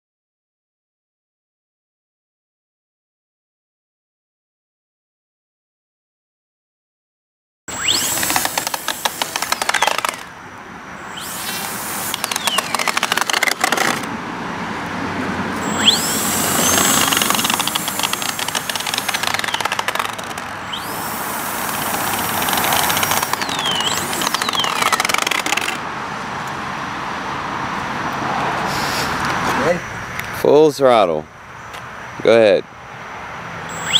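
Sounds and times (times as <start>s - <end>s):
model plane electric motor whine: 7.7s - 10.3s, 11.1s - 14.1s, 15.6s - 25.8s.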